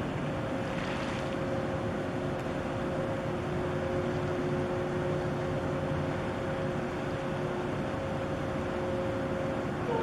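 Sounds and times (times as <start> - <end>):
ship engines rumbling: 0.0 - 10.0.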